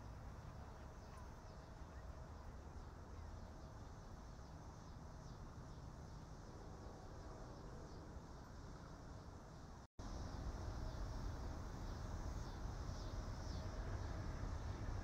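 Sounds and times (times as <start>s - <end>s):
faint high-pitched hiss: 7.8s - 15.0s.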